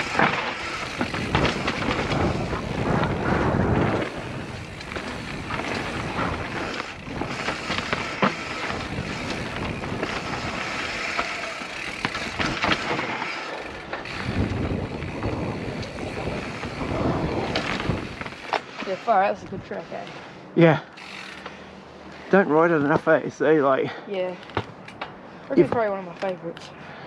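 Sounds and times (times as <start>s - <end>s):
wind buffeting microphone: 0.0s - 11.2s, 14.0s - 18.4s
bike knocks on roots and rock: 0.0s - 18.7s
bike tyre rumble and frame rattle: 0.0s - 26.4s.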